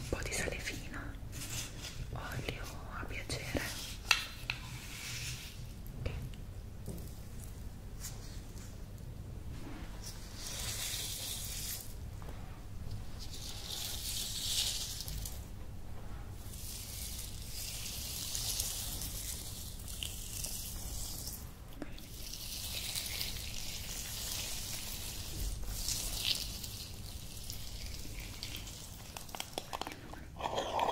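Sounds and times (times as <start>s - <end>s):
scrub rubbed on skin: 4.6s - 5.6s, 22.1s - 29.6s.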